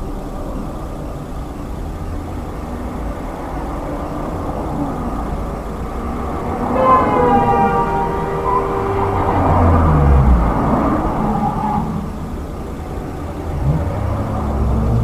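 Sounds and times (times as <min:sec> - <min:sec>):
car road and engine rumble: 0:00.0 - 0:15.0
held tones: 0:04.0 - 0:13.4.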